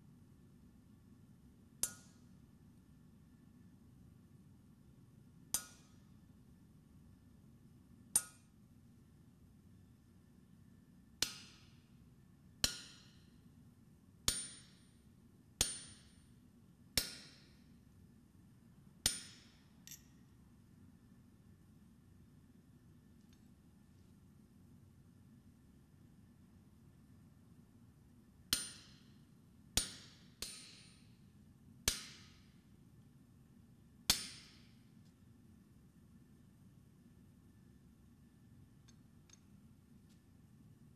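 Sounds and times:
hammer striking steel on anvil: 1.8s - 2.2s, 5.6s - 6.0s, 8.2s - 8.4s, 12.6s - 13.2s, 14.3s - 14.8s, 15.6s - 16.2s, 17.0s - 17.5s, 19.0s - 20.1s, 28.5s - 29.0s, 29.8s - 31.0s, 31.9s - 32.4s, 34.1s - 34.7s.

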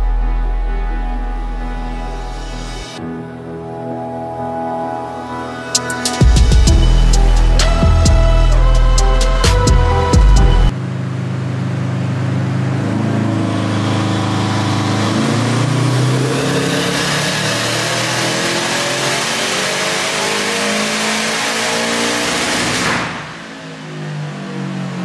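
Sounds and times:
car engine revving at full throttle: 3.6s - 25.0s
car engine idling lower: 6.0s - 17.6s.

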